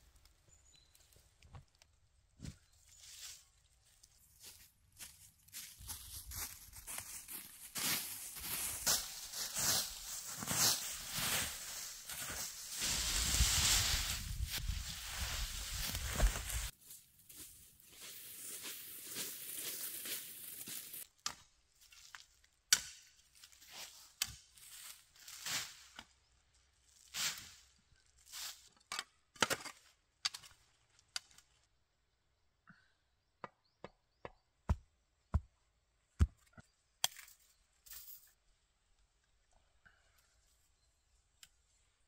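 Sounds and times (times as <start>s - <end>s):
rustling: 5.5s - 21.0s.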